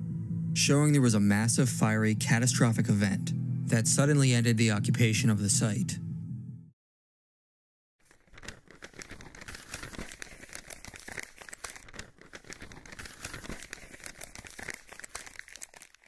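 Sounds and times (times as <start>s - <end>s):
paper rustling and crinkling: 8.0s - 16.0s.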